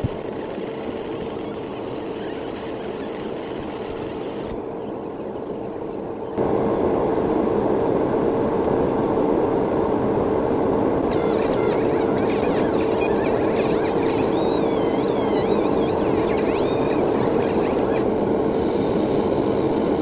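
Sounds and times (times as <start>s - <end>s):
laser beam hissing on metal: 0.0s - 6.4s, 11.1s - 19.9s
laser engraver fan hum: 0.0s - 20.0s.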